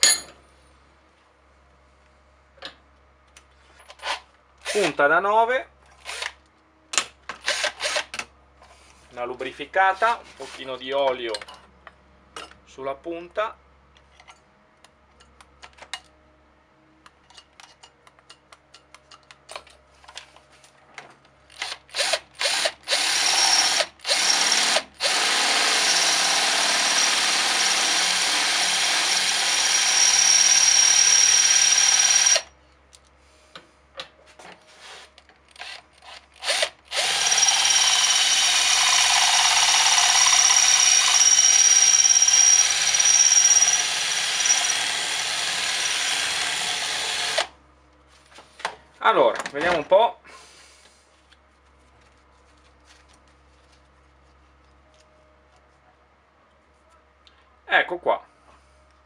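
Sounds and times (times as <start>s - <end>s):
cordless drill whining: 6.0s - 6.4s, 7.4s - 8.1s, 21.5s - 32.5s, 35.6s - 47.5s.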